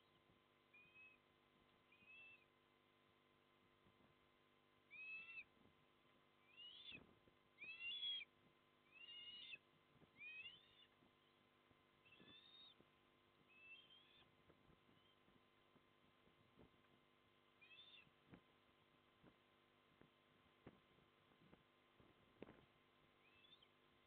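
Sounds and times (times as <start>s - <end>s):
osprey calling: 0.7s - 1.2s, 1.9s - 2.5s, 4.9s - 5.5s, 6.4s - 7.0s, 7.6s - 9.6s, 10.2s - 11.3s, 12.0s - 12.8s, 13.5s - 14.3s, 17.6s - 18.1s, 23.2s - 23.8s.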